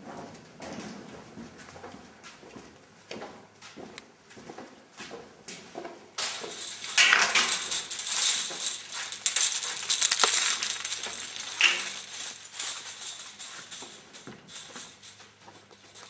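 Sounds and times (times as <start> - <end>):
close rustling and rattling: 5.5 - 16.0.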